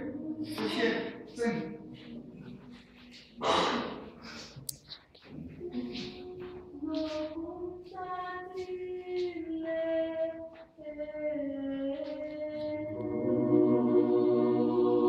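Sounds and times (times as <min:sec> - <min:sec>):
choir singing held notes: 0:12.4 - 0:15.0.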